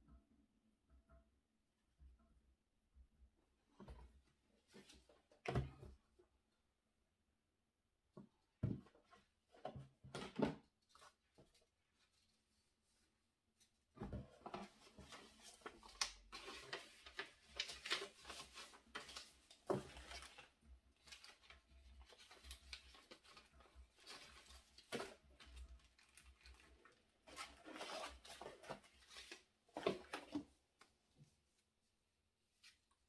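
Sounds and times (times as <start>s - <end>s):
paper rustling and crinkling: 14.3s - 30.5s.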